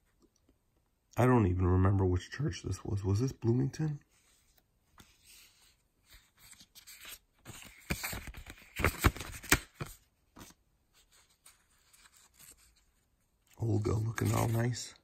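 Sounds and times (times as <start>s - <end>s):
soft scraping and rustling: 10.4s - 15.0s.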